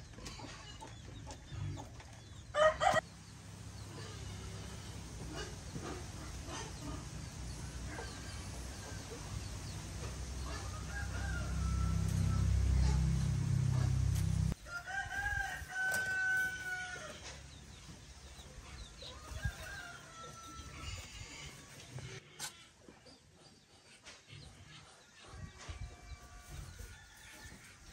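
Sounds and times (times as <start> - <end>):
rooster crowing: 2.6 - 3.0, 10.5 - 17.2
low rumble: 3.1 - 14.6.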